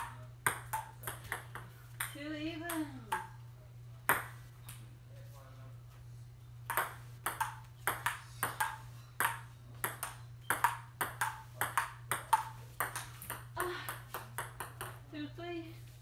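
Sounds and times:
table tennis ball clicking: 6.7 - 15.0.

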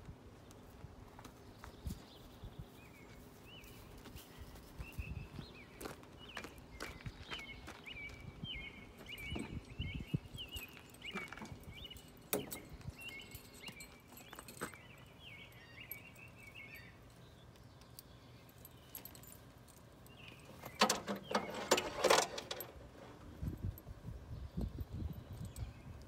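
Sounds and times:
bridle hardware jingling: 7.9 - 26.0.

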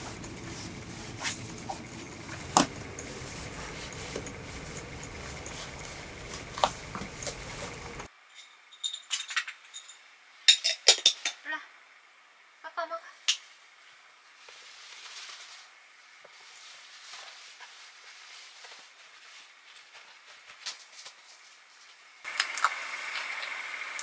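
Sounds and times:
fabric handling: 0.0 - 8.1
light jingling clicks: 0.0 - 8.1
steady hiss: 0.0 - 8.1.

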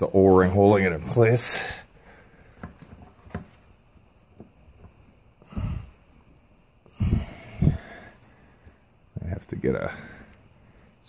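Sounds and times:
person breathing out hard: 5.4 - 6.1, 6.8 - 8.9.

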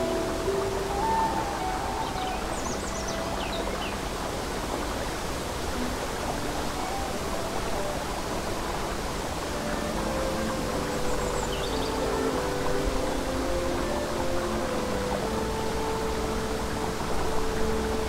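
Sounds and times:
babbling brook: 0.0 - 18.0
soft held music notes: 0.0 - 18.0
bird chirping: 10.9 - 12.3.

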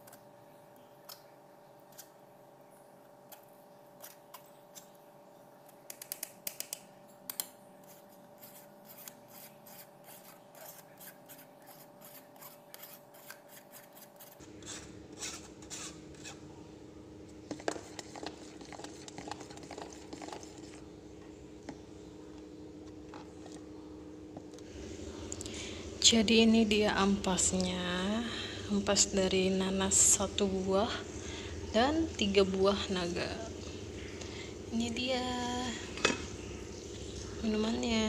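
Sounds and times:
metal spoon scraping in strainer: 8.4 - 16.5.

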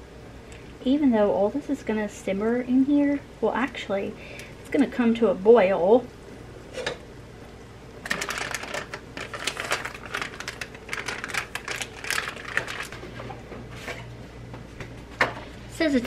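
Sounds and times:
foil wrapper crumpling: 8.0 - 13.0.

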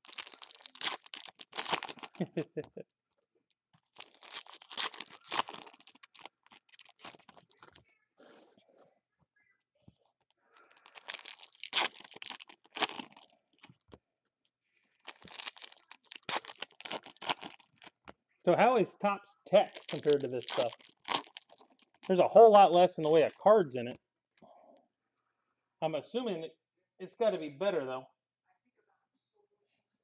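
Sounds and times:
foil wrappers torn and crinkled: 0.0 - 2.6, 3.8 - 7.8, 10.6 - 13.8, 14.9 - 18.1, 19.6 - 22.2.

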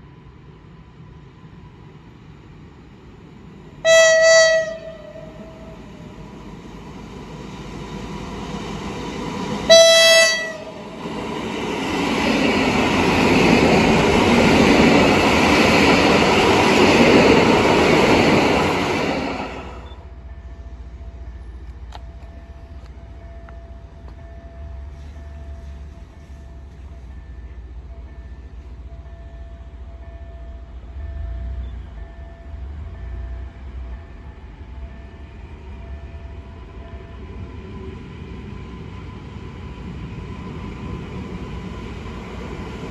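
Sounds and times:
train horn blasts: 3.8 - 5.8, 9.7 - 10.8
train wheels rushing: 4.2 - 20.0.

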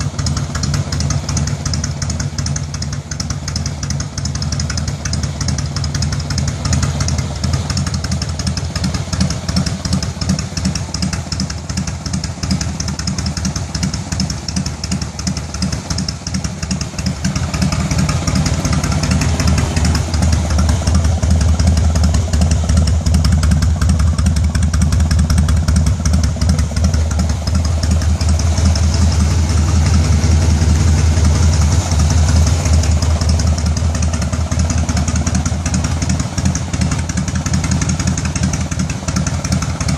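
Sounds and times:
motorcycle engine idling: 0.0 - 39.9.

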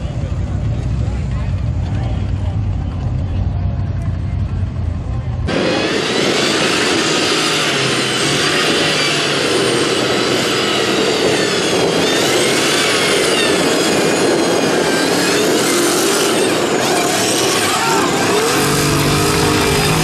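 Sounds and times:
racing car engine revving: 5.5 - 20.0.

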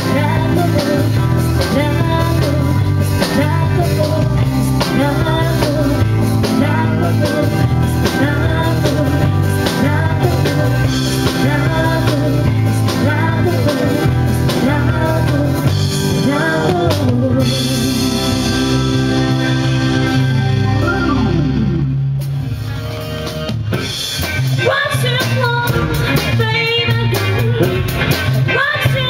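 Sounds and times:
woman singing: 0.0 - 18.9, 24.6 - 27.7, 28.4 - 29.0
rock band playing: 0.0 - 29.0.

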